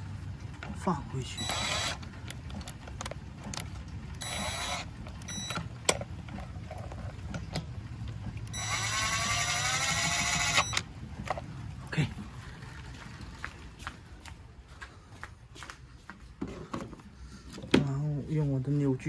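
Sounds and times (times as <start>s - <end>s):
impact wrench running: 1.4s - 2.8s, 3.4s - 5.7s, 8.5s - 10.9s.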